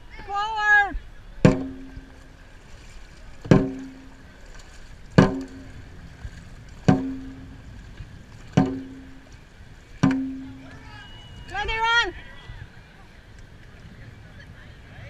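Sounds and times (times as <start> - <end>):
drum hits ringing: 1.4 - 2.3, 3.5 - 4.2, 5.2 - 5.8, 6.9 - 7.6, 8.6 - 9.3, 10.0 - 10.9.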